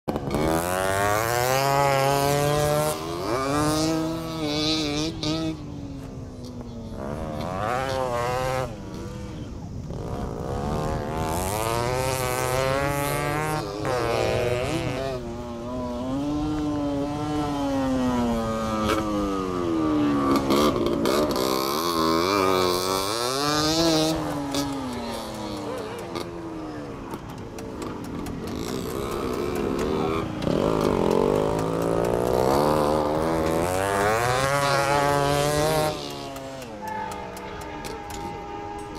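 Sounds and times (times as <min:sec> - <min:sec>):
motorcycle engines revving: 0:00.0 - 0:38.9.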